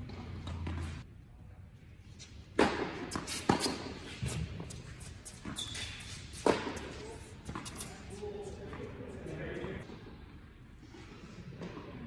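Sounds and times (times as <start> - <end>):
shoe squeaking on court: 2.2 - 8.7
tennis ball hit by racket: 2.6 - 4.4, 6.3 - 7.9
ball bouncing on hard court: 2.6 - 8.0.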